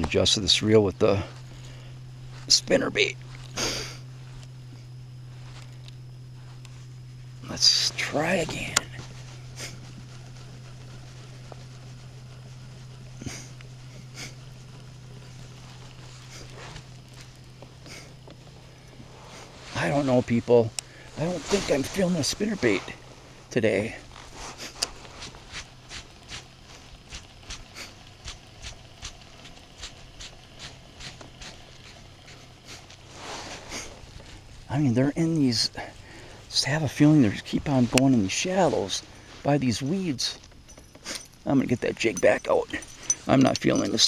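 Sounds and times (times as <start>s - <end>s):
steady low hum: 0.0s - 44.0s
person sniffing: 3.6s - 4.0s.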